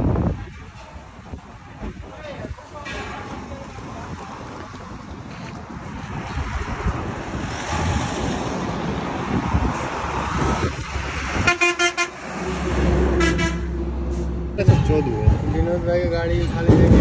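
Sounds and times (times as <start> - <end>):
passing highway traffic: 0.0 - 17.0
vehicle horn short toots: 11.4 - 12.1, 13.2 - 13.7.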